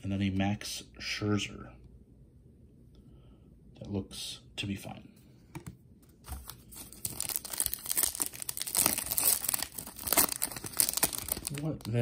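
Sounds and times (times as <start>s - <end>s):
foil pack crinkling and tearing: 6.3s - 12.0s.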